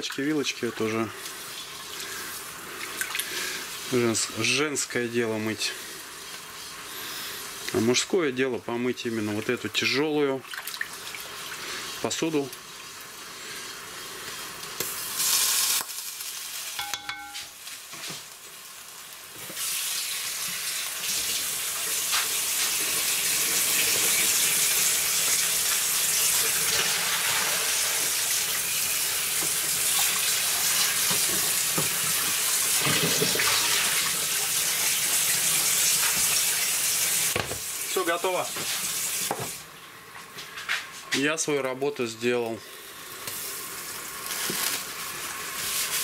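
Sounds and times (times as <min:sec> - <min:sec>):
water sloshing in a pot: 0:09.1 - 0:11.7.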